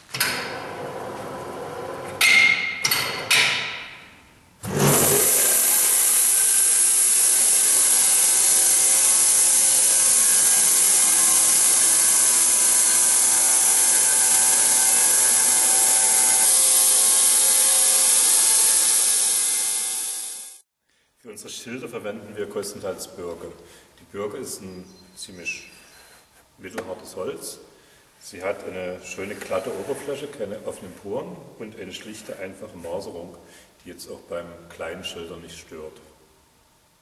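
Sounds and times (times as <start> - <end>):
bandsaw blade cutting log: 4.6 - 20.6.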